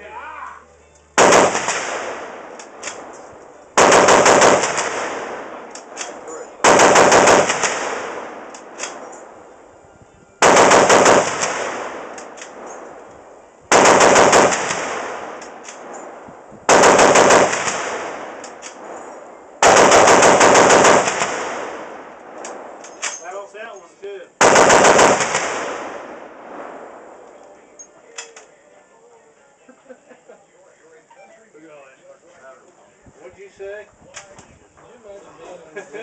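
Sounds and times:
gunfire echo: 0:01.2 - 0:09.6, 0:10.4 - 0:13.1, 0:13.7 - 0:23.0, 0:24.4 - 0:27.3
machine gun bursts: 0:03.8 - 0:05.1, 0:06.6 - 0:07.8, 0:10.4 - 0:11.7, 0:13.7 - 0:15.0, 0:16.7 - 0:17.8, 0:19.6 - 0:21.4, 0:24.4 - 0:25.6.

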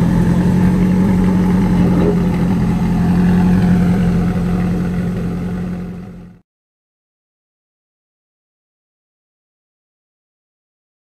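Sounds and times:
car engine droning: 0:00.0 - 0:06.4.

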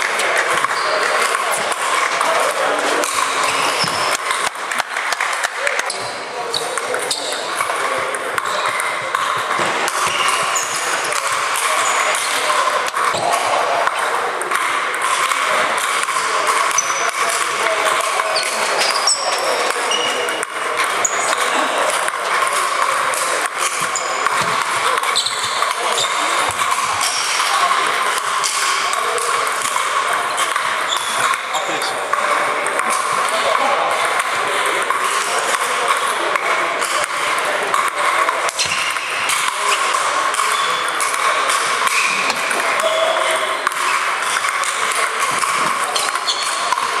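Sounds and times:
echoing hubbub of voices: 0:00.0 - 0:47.0
table tennis balls hitting: 0:00.0 - 0:47.0.

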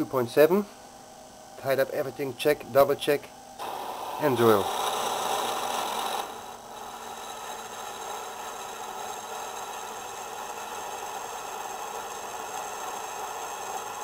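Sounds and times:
bench drill drilling metal: 0:03.6 - 0:14.0.

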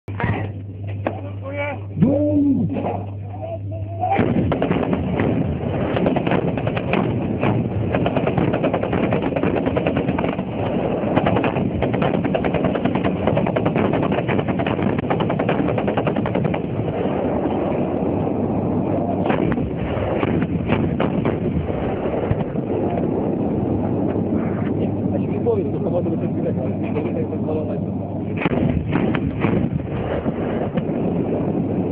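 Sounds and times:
heavy automatic gunfire: 0:04.2 - 0:16.7, 0:19.3 - 0:22.3, 0:28.4 - 0:31.2.

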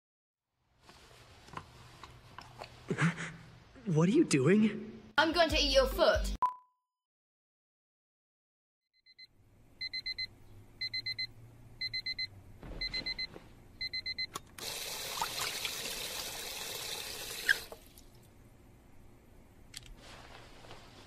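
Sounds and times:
alarm clock beeping: 0:09.1 - 0:14.4.

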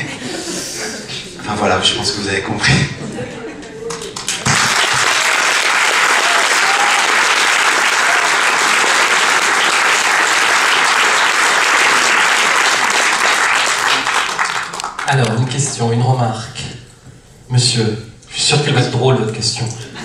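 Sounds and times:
audience applauding: 0:03.8 - 0:15.3.

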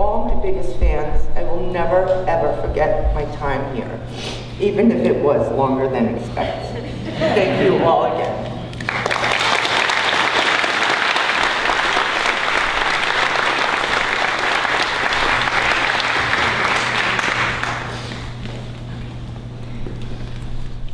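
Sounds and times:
steady low hum: 0:00.0 - 0:20.9
audience applauding: 0:08.8 - 0:18.2.

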